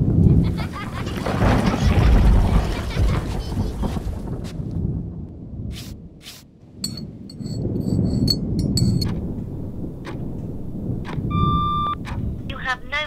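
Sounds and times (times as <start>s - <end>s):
steady low rumble: 2.8s - 13.0s.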